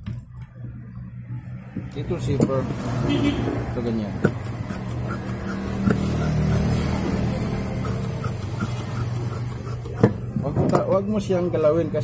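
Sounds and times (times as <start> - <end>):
low motor-like hum: 0.1 - 10.7
scissors cutting fabric: 4.2 - 10.3.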